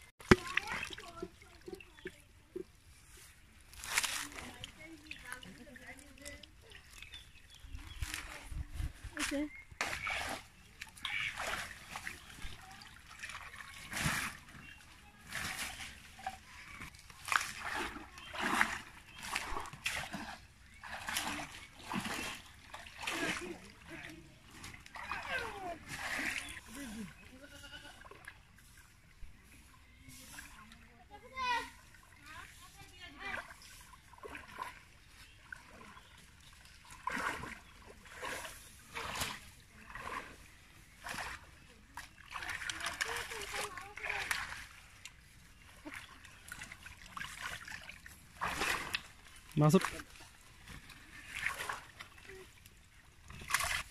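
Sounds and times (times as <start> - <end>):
water splashing and sloshing: 0.0 - 53.9
water trickling through mesh: 0.2 - 29.5.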